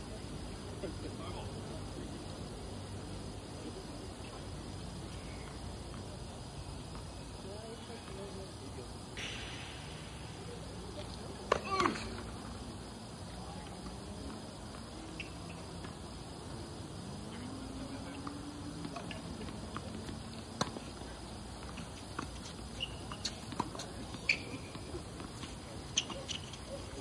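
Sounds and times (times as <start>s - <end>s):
rackets striking tennis ball: 9.2s - 12.3s
sneakers squeaking on court: 13.8s - 16.0s, 18.2s - 27.0s.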